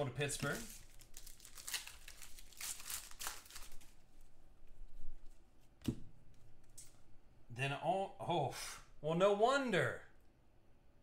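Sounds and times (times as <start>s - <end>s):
wrapper rustling: 0.2s - 4.3s
foil wrapper crinkling: 0.4s - 4.0s.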